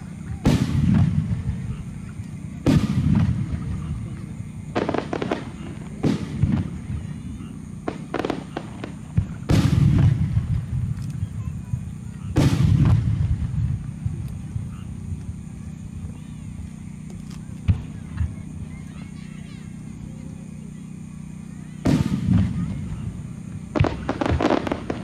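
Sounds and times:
fireworks deep booms: 0.0s - 25.0s
fireworks sharp cracks: 0.0s - 25.0s.

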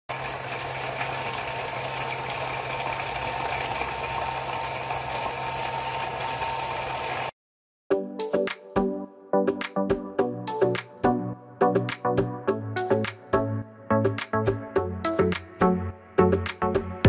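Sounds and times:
mini water pump humming: 0.1s - 7.3s
water jets splashing into bottle: 0.1s - 7.3s.

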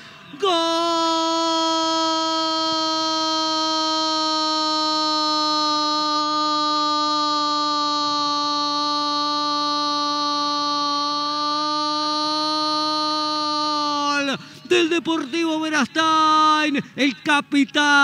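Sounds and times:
commentator shouting goal: 13.9s - 18.0s.

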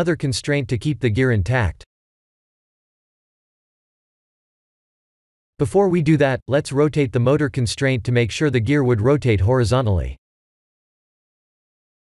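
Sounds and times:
narrating voice: 0.0s - 1.9s, 5.6s - 10.2s.

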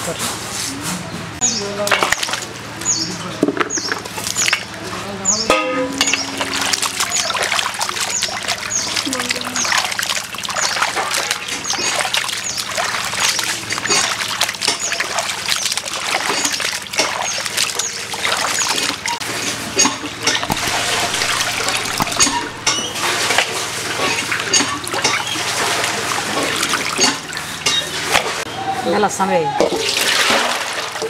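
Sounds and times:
water splashing in a pot: 5.5s - 28.4s, 29.8s - 31.0s
hands rubbing meat in water: 6.3s - 19.6s, 20.2s - 28.4s.

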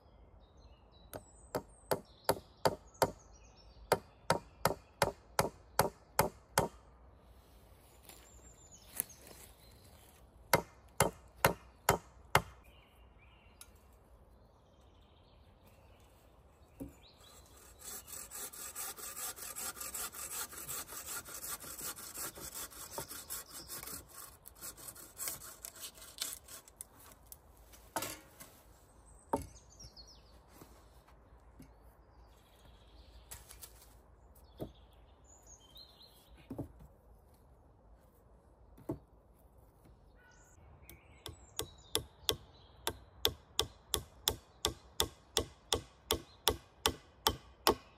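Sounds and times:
wood being sawn: 17.2s - 26.7s.

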